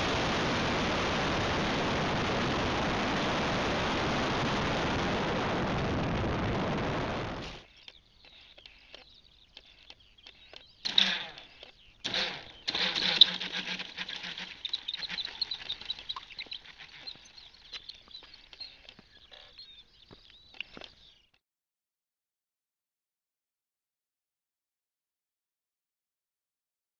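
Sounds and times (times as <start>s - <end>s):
loud rushes of noise: 0.0s - 7.6s
faint high chirps: 14.1s - 21.4s.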